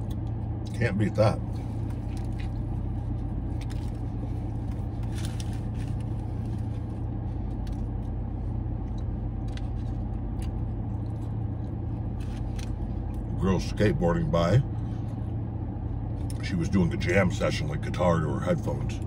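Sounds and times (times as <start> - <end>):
chewing clicks: 0.0 - 0.8
car engine idling: 0.0 - 19.0.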